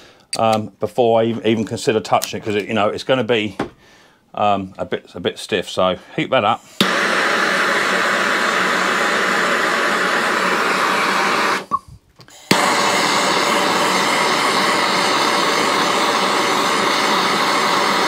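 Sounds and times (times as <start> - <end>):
gas blowtorch roaring: 6.8 - 11.7, 12.4 - 18.0.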